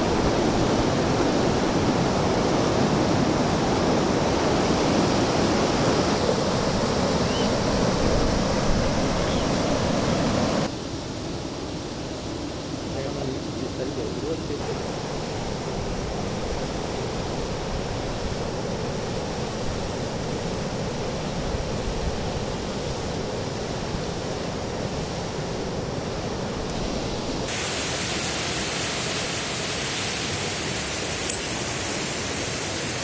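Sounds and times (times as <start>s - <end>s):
river rapids and waterfall: 0.0s - 33.0s
sharp click: 30.6s - 31.5s.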